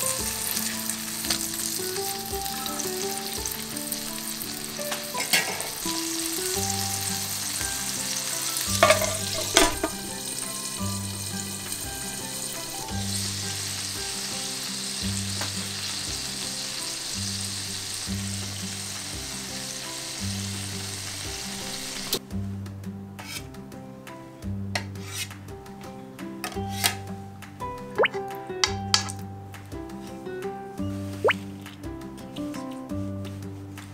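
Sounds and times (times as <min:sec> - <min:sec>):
patties sizzling in a frying pan: 0:00.0 - 0:22.3.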